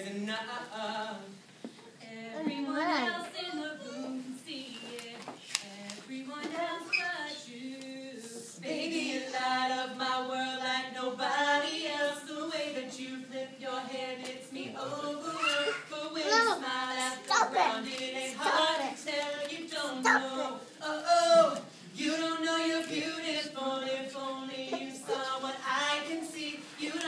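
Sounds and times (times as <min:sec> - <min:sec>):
voices singing long notes: 0:06.8 - 0:27.0.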